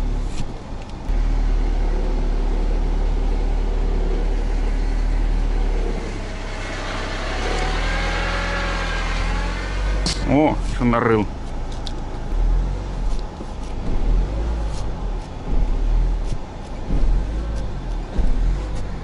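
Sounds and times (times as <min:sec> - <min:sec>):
car engine in low gear: 0:00.0 - 0:19.0.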